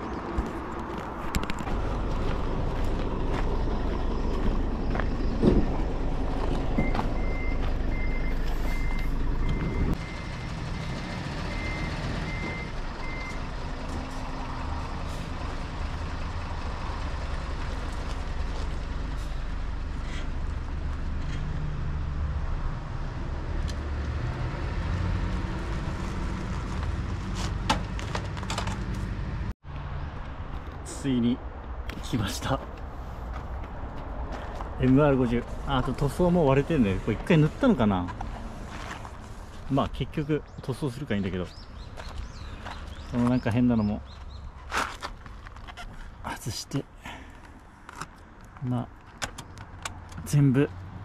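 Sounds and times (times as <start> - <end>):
truck engine running: 1.6 - 22.8
reversing beeper beeps: 6.8 - 10.9, 11.5 - 13.4.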